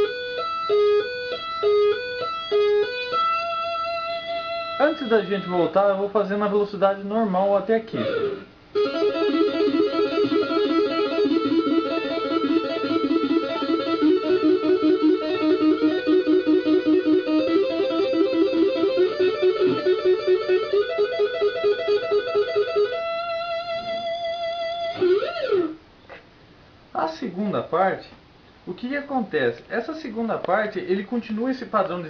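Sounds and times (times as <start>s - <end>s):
electric guitar tapping arpeggios: 0.0s - 5.7s, 8.0s - 25.8s.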